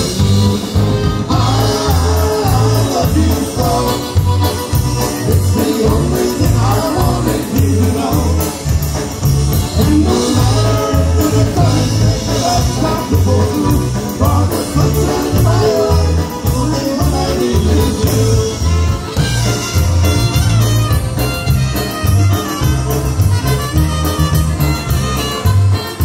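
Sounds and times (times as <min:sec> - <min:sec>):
accordion: 0:00.0 - 0:26.0
drum kit: 0:00.0 - 0:26.0
electric bass: 0:00.0 - 0:26.0
polka band playing: 0:00.0 - 0:26.0
trumpets: 0:17.9 - 0:26.0.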